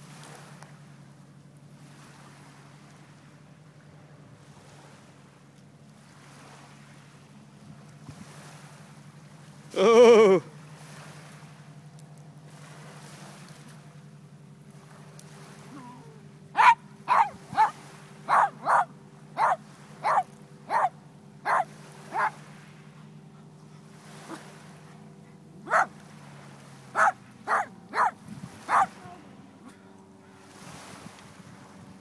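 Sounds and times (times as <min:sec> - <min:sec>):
dog barking: 0:16.6 - 0:22.4, 0:25.6 - 0:25.9, 0:27.0 - 0:29.0.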